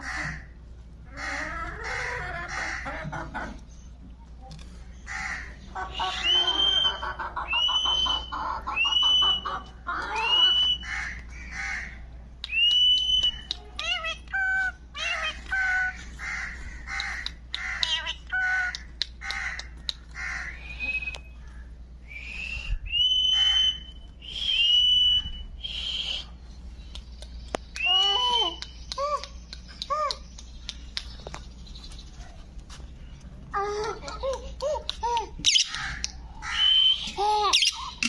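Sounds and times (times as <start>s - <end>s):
parakeet calling: 5.1s - 12.0s, 13.0s - 21.7s, 23.0s - 24.0s, 35.4s - 38.0s.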